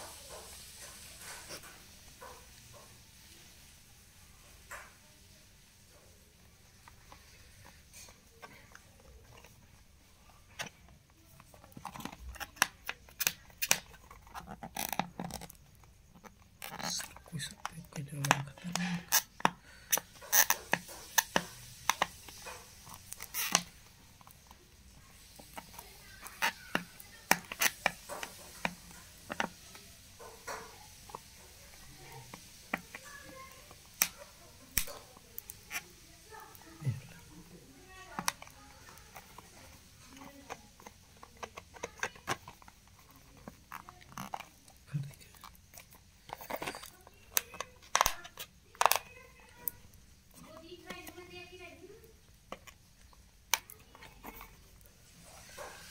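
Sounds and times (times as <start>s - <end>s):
paperboard box clicks and crinkles: 6.8s - 37.3s, 37.9s - 55.9s
fingernails scratching a sticker: 18.4s - 23.8s
fingernails scratching cardboard box: 38.0s - 48.4s.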